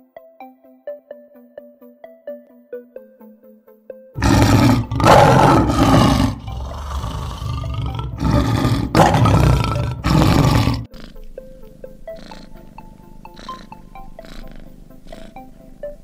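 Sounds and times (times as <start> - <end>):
soft tinkling background music: 0.0 - 4.2, 10.9 - 16.0
lion roaring: 4.2 - 16.0.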